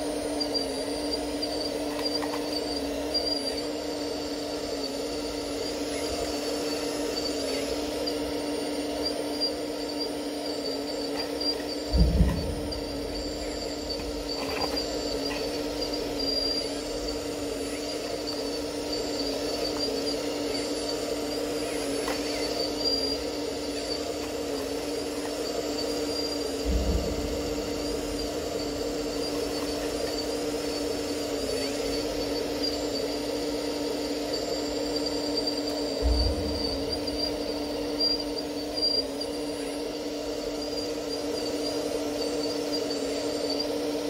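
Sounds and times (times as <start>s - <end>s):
model excavator motor whine: 0.0s - 44.0s
dull low thump: 11.9s - 17.3s, 26.6s - 30.8s, 36.0s - 38.3s.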